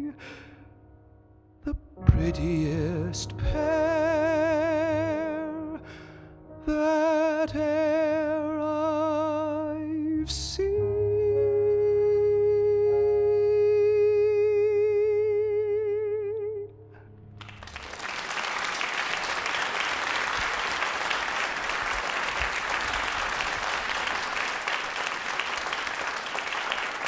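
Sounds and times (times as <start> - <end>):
piano chord: 0.0 - 17.8
man singing with vibrato: 1.7 - 5.8, 6.6 - 16.7
audience applauding: 17.4 - 27.0.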